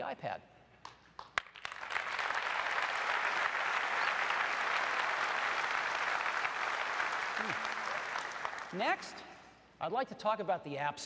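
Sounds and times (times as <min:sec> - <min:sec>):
large audience applauding: 0:01.2 - 0:09.1.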